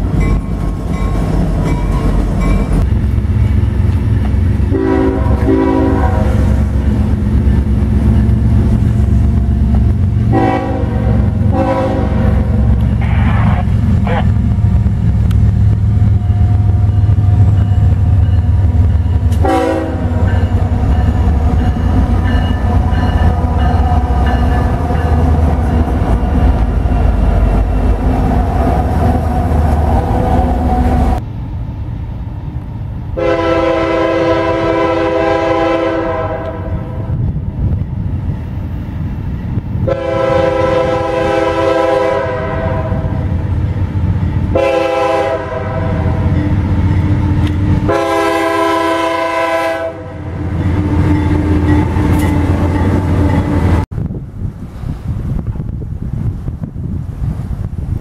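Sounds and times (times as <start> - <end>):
locomotive engine and wheels: 0.0 - 58.0
locomotive air horn blasts: 4.7 - 6.6, 10.3 - 13.4, 19.4 - 20.2, 33.2 - 37.2, 39.9 - 43.2, 44.5 - 46.3, 47.9 - 51.6.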